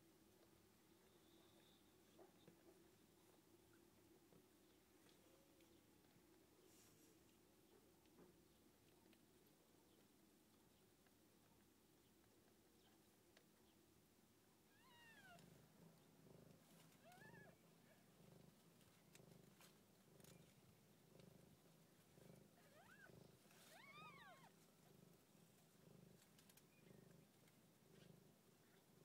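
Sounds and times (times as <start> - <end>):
cat purring: 14.7 - 29.0.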